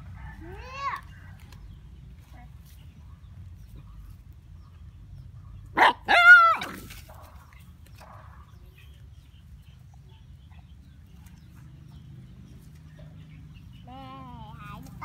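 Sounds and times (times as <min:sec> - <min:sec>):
dog barking: 0:05.4 - 0:08.6
dog yelping: 0:05.8 - 0:06.9.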